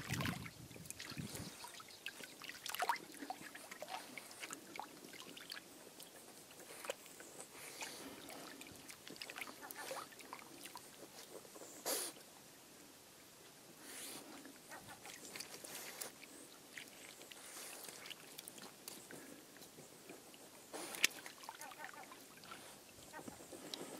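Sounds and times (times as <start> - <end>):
small splashes of water: 0.0 - 5.6.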